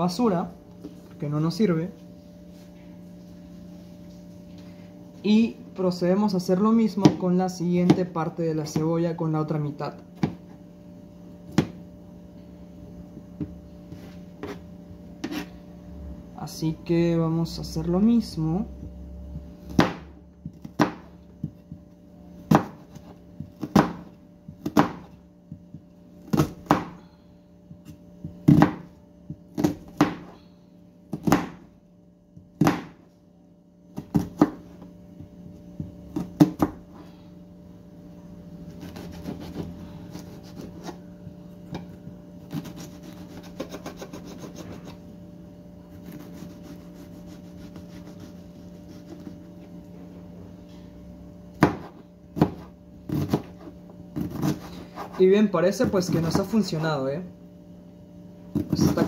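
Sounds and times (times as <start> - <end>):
steady low hum: 0.0 - 59.0
knife chopping on cutting board: 15.2 - 15.5, 19.6 - 27.0, 27.8 - 30.4, 31.1 - 31.7, 32.6 - 33.0, 34.0 - 34.6, 38.7 - 41.0, 41.7 - 45.0, 51.6 - 55.2, 58.5 - 59.0.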